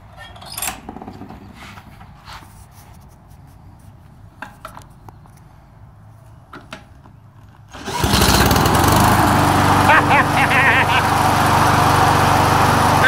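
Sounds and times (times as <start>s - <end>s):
small mower engine running: 7.7s - 13.0s.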